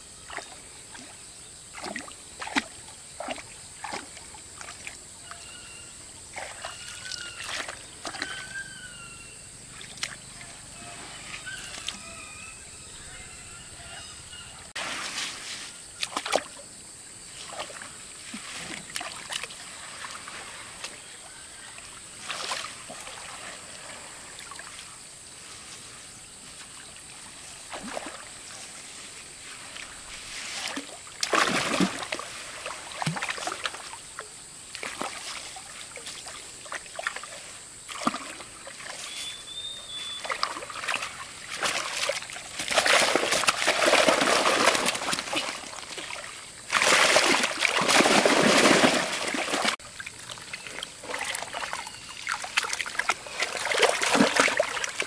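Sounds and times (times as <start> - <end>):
water splashing and trickling: 0.2 - 5.5, 6.2 - 8.8, 9.7 - 12.1, 14.7 - 55.0.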